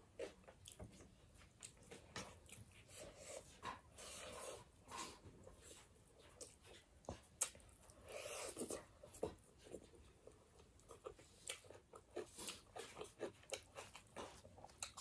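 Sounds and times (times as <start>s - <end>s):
person chewing: 0.0s - 15.0s.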